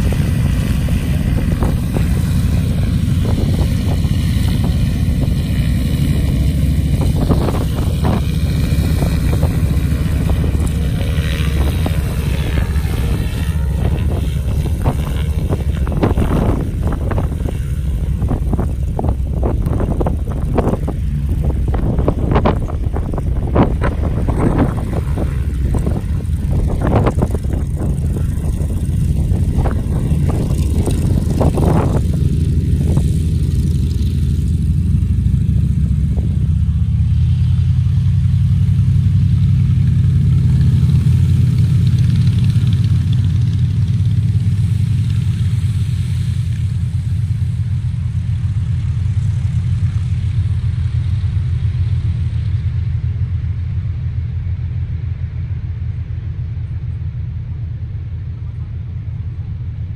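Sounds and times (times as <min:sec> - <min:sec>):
wind buffeting microphone: 0:00.0 - 0:37.3
propeller plane engine droning: 0:00.0 - 0:59.9.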